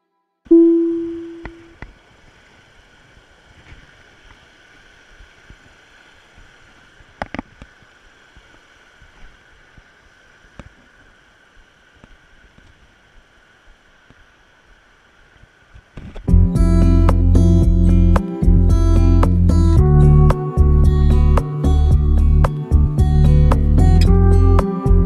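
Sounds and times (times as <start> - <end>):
river water rushing over rocks: 0.6 - 16.0.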